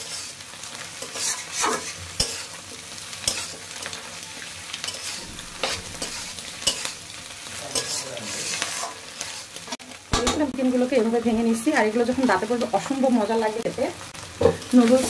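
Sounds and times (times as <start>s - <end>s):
metal spatula scraping pan: 0.0s - 2.6s, 3.2s - 10.4s
food sizzling in a pan: 0.0s - 15.0s.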